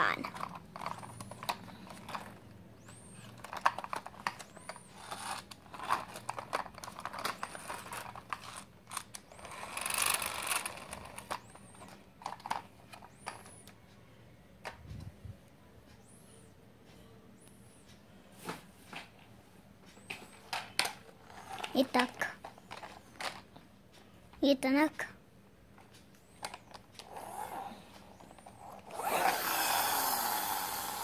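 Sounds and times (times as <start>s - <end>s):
toy wheel spinning: 0.1s - 2.4s, 3.3s - 13.5s, 26.4s - 31.0s
plastic toy car clicks and rattles: 0.1s - 13.8s, 20.5s - 23.5s, 26.4s - 31.0s.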